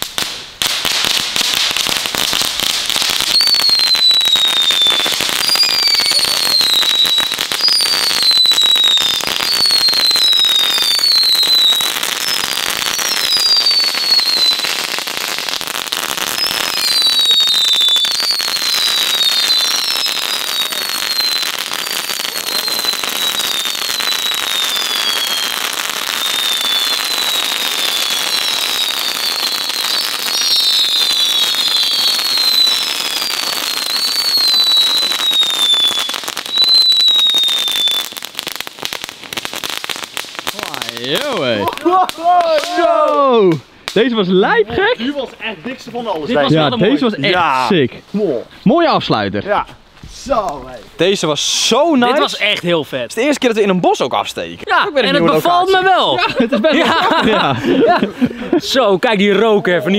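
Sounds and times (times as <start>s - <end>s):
firework sparks hissing: 0.0s - 44.0s, 49.7s - 59.9s
falling whistles: 3.3s - 14.8s, 16.3s - 38.2s.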